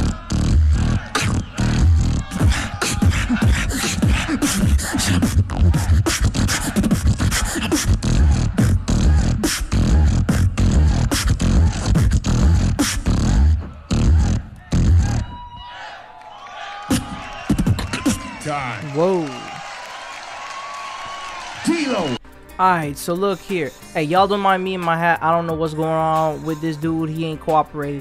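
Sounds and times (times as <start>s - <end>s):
beatboxing into microphone: 0.0s - 15.4s, 16.9s - 19.4s.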